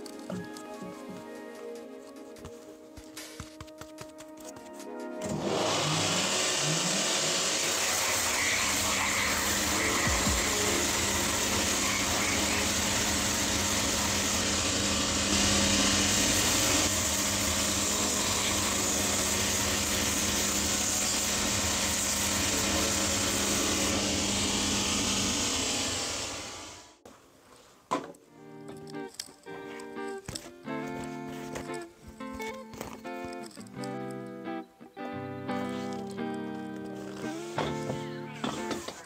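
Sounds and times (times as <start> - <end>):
sanding wheel grinding leather: 5.3 - 26.7.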